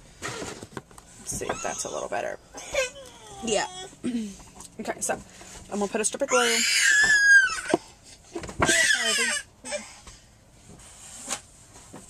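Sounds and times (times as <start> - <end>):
animal crying out: 6.3 - 7.8.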